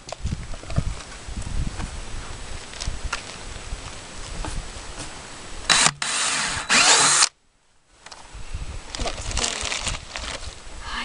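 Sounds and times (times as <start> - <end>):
wind buffeting microphone: 0.0 - 5.8, 8.2 - 11.0
drill through plastic bucket: 5.7 - 7.3.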